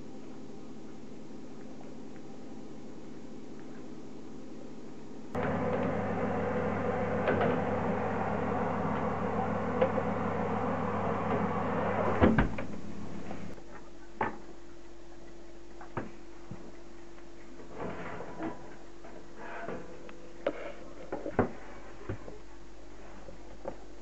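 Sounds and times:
fan oven humming: 0.0 - 24.0
oven door shutting: 5.4 - 12.8.

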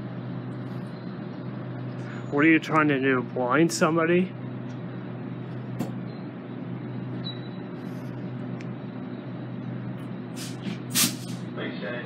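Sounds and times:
idling train hum and hiss: 7.8 - 12.0.

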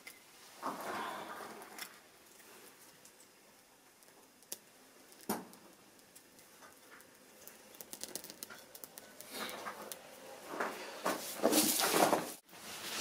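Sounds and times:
kindling fire crackling: 0.0 - 13.0
sharp wood snaps: 4.0 - 10.0.

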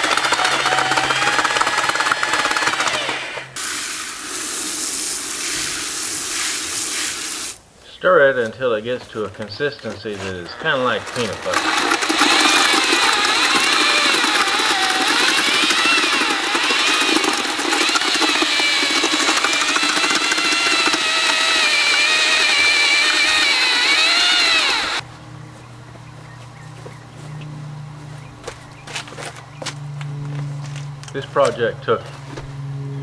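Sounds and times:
electric drill mixer whining: 0.0 - 3.6, 10.5 - 25.0.

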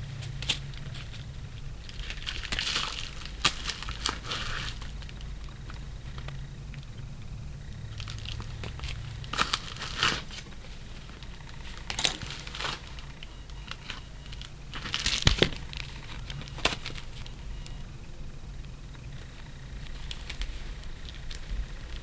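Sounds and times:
packaging crinkling and rustling: 0.0 - 6.4, 8.0 - 17.8
stickers being handled: 0.0 - 6.9, 7.9 - 17.8.

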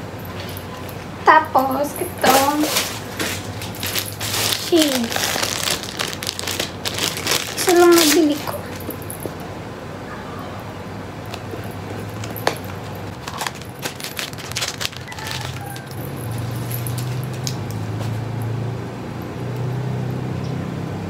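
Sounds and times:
low steady hum: 0.0 - 21.0
plastic bag crinkling: 2.0 - 9.3, 11.3 - 17.6.

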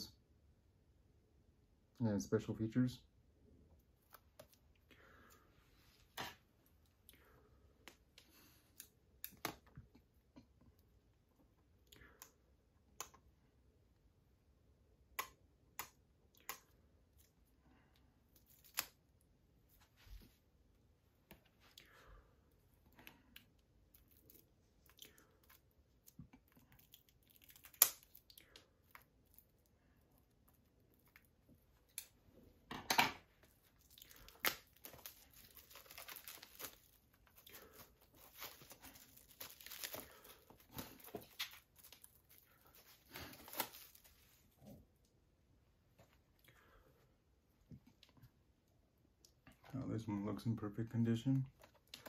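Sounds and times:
plastic wrap crinkling and tearing: 18.4 - 19.0, 23.9 - 29.6, 33.5 - 44.4.

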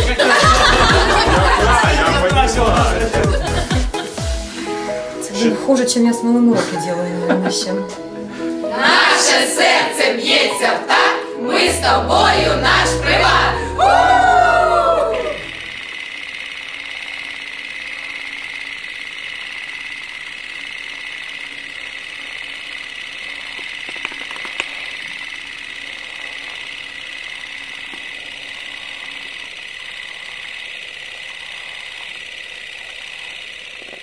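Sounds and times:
low hum: 0.3 - 3.8, 11.4 - 34.0
faint high whine: 11.4 - 34.0.

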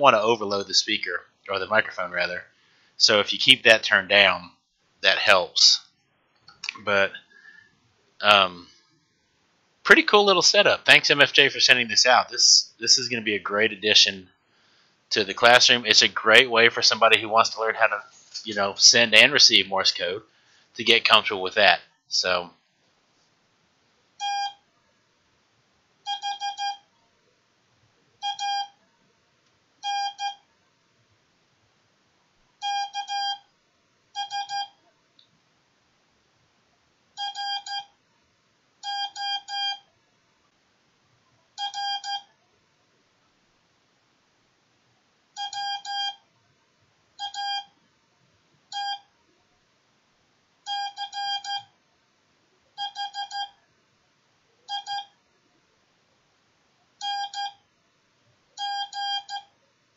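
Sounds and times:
morse code beeps: 24.2 - 24.6, 26.1 - 26.9, 28.2 - 28.8, 29.8 - 30.4, 32.6 - 33.5, 34.2 - 34.8, 37.2 - 37.9, 38.8 - 39.9, 41.6 - 42.3, 45.4 - 46.2, 47.2 - 47.8, 48.7 - 49.1, 50.7 - 51.7, 52.8 - 53.6, 54.7 - 55.2, 57.0 - 57.6, 58.6 - 59.5.

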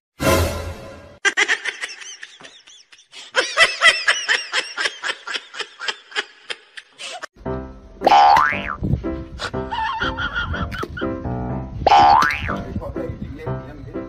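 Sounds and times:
high-pitched human laughter: 1.2 - 7.3, 9.4 - 11.0.

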